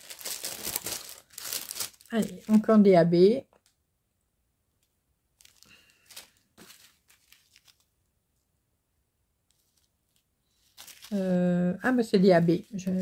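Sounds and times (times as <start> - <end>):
plastic bags crinkling: 0.0 - 2.8, 5.4 - 7.9, 10.5 - 11.4.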